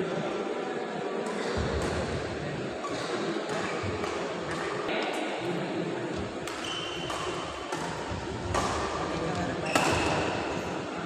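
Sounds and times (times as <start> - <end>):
murmur of spectators: 0.0 - 11.0
shoe squeak: 6.6 - 7.4, 9.6 - 10.1.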